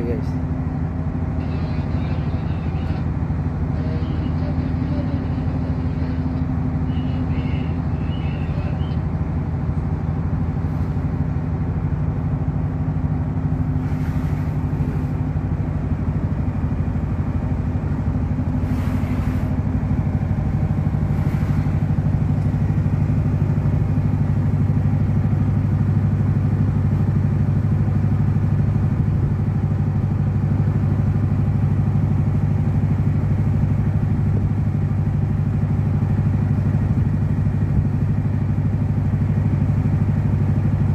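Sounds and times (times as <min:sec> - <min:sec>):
boat engine droning: 0:00.0 - 0:40.9.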